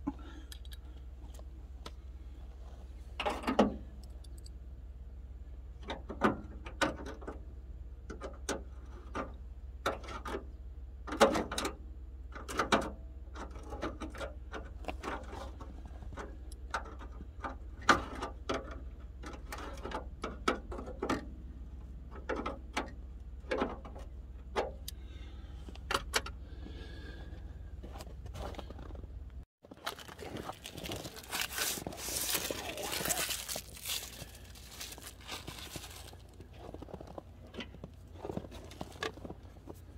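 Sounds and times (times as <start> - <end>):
hand tools clicking and scraping: 29.8 - 39.9.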